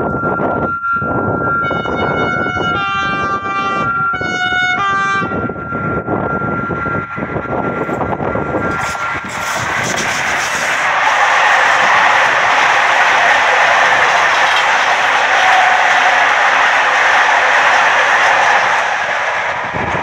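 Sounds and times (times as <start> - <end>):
locomotive horn blasts: 1.1 - 7.0
train wheels rushing on rails: 5.4 - 20.0.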